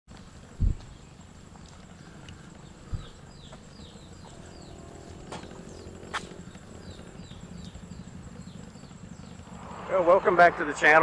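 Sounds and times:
bird chirping: 0.8 - 10.9
high-pitched whine: 4.0 - 11.0
low rumble: 4.0 - 11.0.

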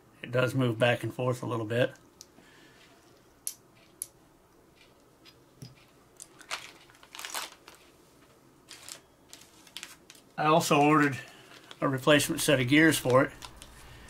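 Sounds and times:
plastic bag crinkling: 6.2 - 8.0, 8.6 - 14.0.

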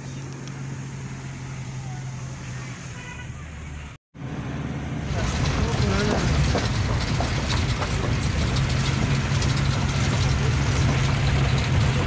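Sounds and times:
engine low rumble: 0.0 - 12.0
tyres crunching over gravel: 5.1 - 12.0.

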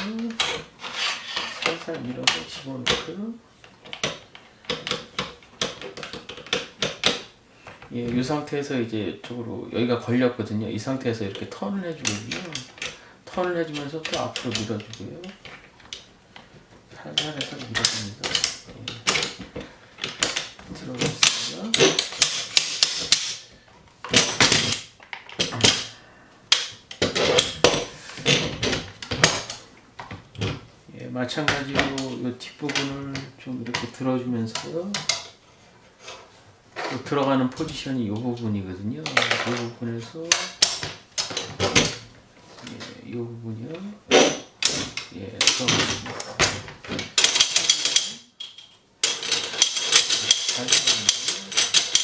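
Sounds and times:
metal parts clicking and rattling: 3.7 - 7.3, 12.0 - 30.6, 36.8 - 38.2, 39.0 - 43.0, 44.1 - 52.0
rifle parts clicking and scraping: 47.0 - 52.0.

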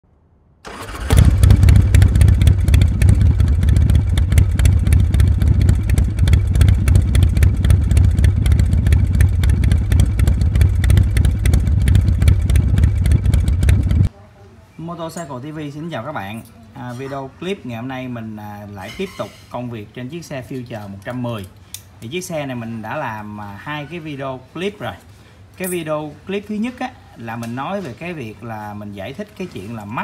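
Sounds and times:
motorcycle engine running: 0.7 - 14.1.

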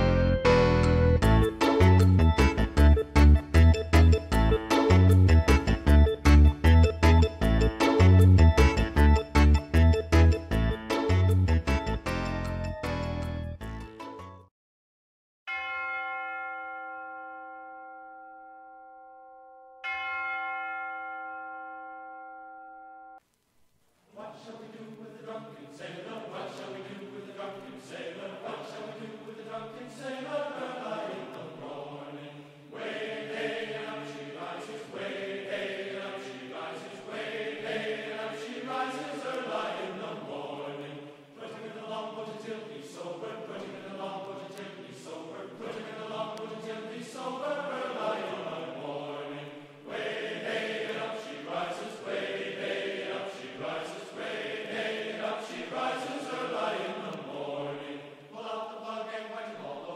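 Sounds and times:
choir chanting held chords: 24.1 - 59.9.

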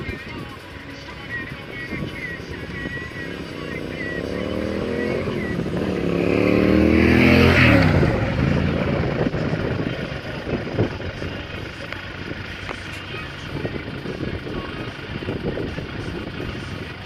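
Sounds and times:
motorcycle engine accelerating past: 2.3 - 9.8.

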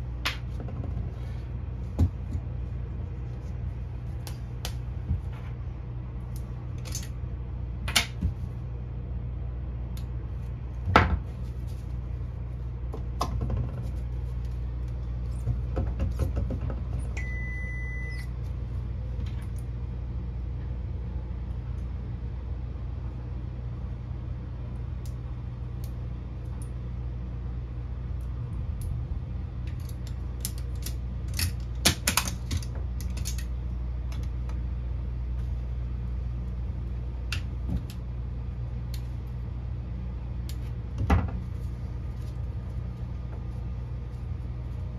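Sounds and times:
steady low hum: 0.0 - 44.9
electronic beep: 17.2 - 18.3.

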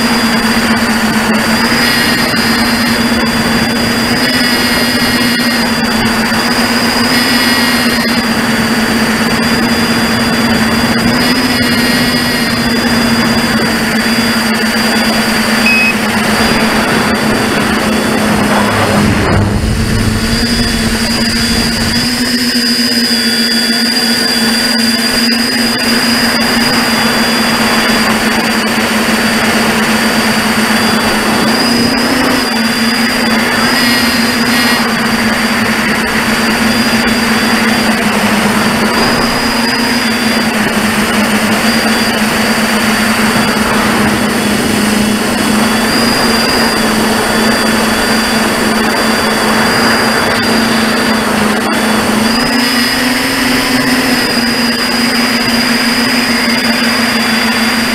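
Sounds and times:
electric motors and propellers whining: 0.0 - 57.9
rush of air: 8.3 - 22.8.

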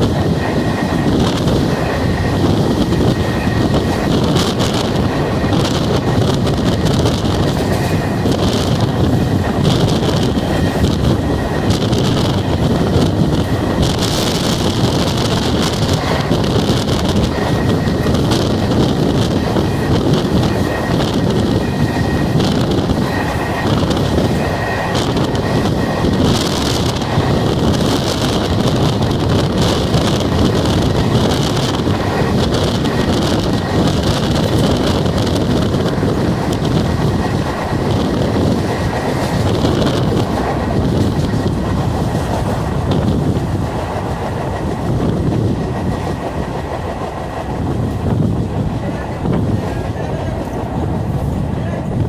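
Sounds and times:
rushing air: 0.0 - 52.0
train wheels rumbling on rails: 0.0 - 52.0.

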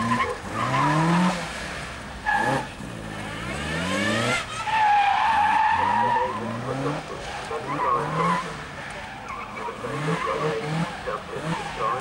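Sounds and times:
car engine revving hard: 0.0 - 4.6, 5.3 - 8.7, 9.6 - 12.0
tyres squealing: 4.4 - 12.0.

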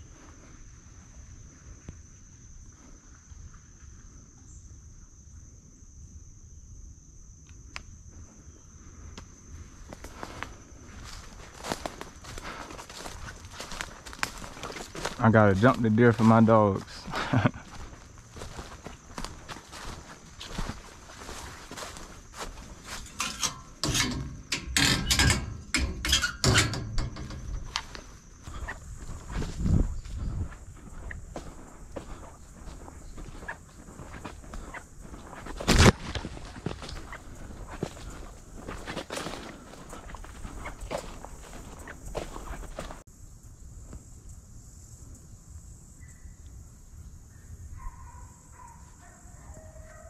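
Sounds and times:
high-pitched insect trill: 0.0 - 50.0
footsteps in dry leaves: 11.0 - 23.2, 28.4 - 43.0
metal door latch clanking: 23.2 - 27.9.

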